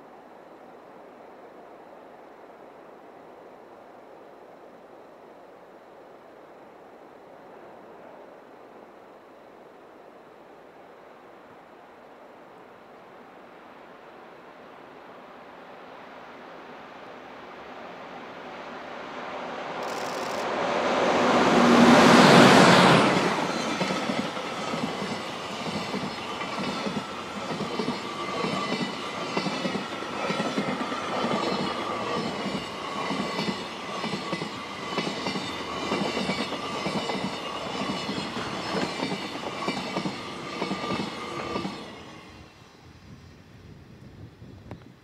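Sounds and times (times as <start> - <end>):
electric locomotive passing: 13.2 - 44.4
train wheels clacking on rails: 19.8 - 42.4.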